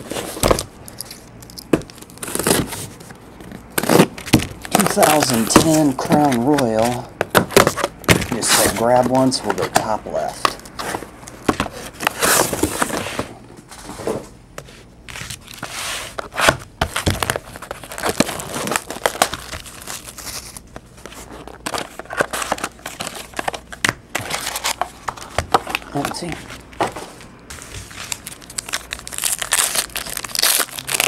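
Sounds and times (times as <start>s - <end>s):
plastic wrap crinkling and tearing: 3.7s - 10.7s, 17.0s - 26.8s, 27.8s - 31.0s.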